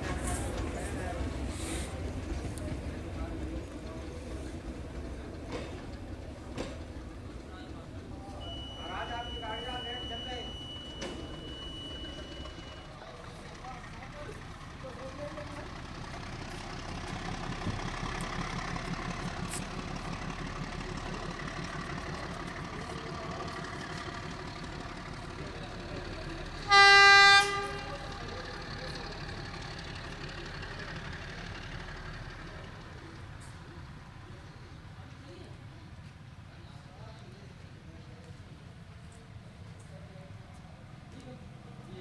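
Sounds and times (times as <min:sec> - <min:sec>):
diesel locomotive engine rumble: 0:00.0 - 0:42.0
locomotive horn blast: 0:26.6 - 0:28.2.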